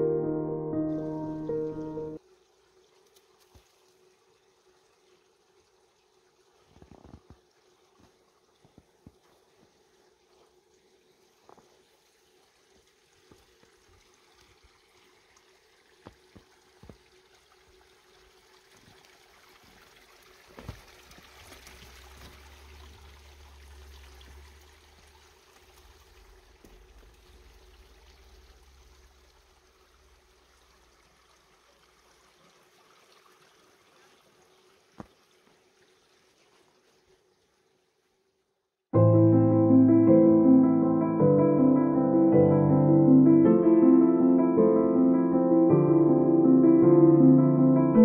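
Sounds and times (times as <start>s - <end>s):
trickle of running water: 1.0s - 38.6s.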